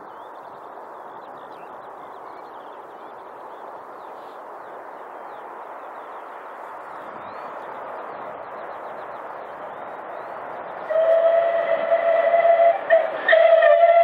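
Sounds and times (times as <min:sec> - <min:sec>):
small birds chirping: 0:00.0 - 0:10.9
steady rushing noise: 0:00.0 - 0:14.0.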